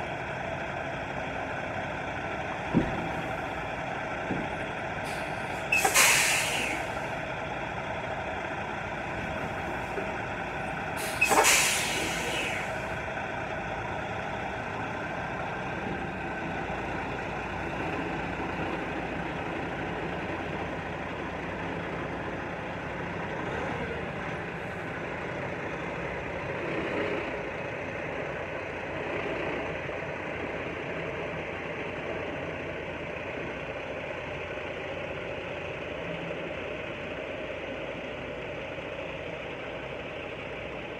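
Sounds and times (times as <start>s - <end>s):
diesel truck engine running: 0.0s - 40.9s
air brakes hissing: 5.0s - 7.1s, 11.0s - 12.9s.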